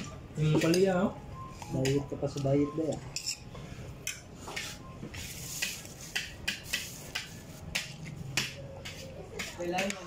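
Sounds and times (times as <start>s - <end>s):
spoon clinking on plate: 2.9s - 3.5s.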